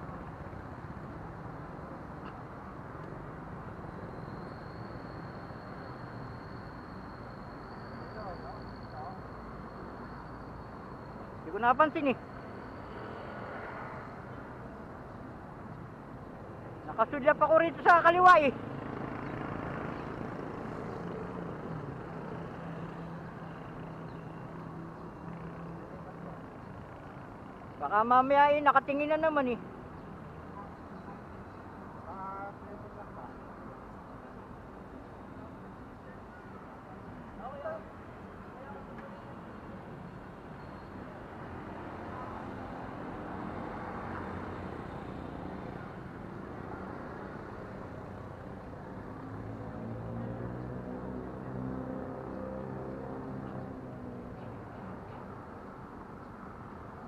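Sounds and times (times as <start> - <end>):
traffic background noise: 0.0 - 57.0
vehicle passing: 41.5 - 54.4.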